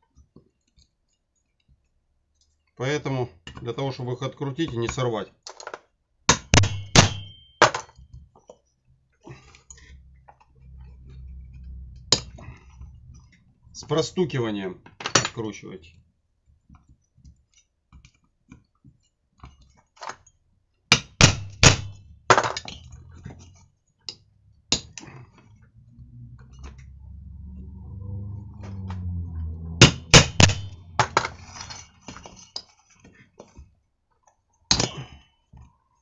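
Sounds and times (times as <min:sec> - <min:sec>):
low rumble: 0:25.4 - 0:32.0.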